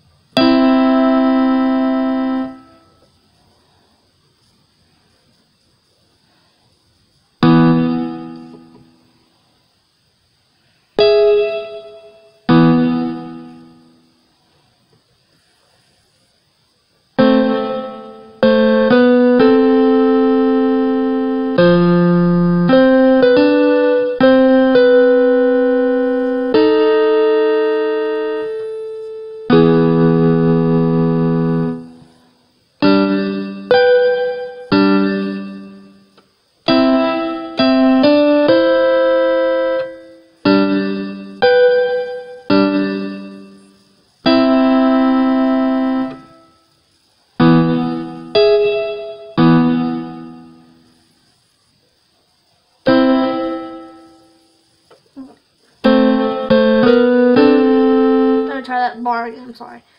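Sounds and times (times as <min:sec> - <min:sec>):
electronic keyboard piano chords: 0:00.0 - 0:03.1, 0:07.4 - 0:09.2, 0:10.9 - 0:14.0, 0:17.1 - 0:51.2, 0:52.8 - 0:54.6, 0:55.2 - 0:59.0.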